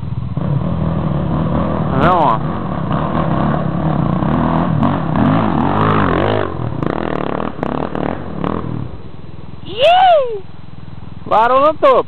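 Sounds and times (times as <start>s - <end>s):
dirt bike engine revving: 0.0s - 9.0s.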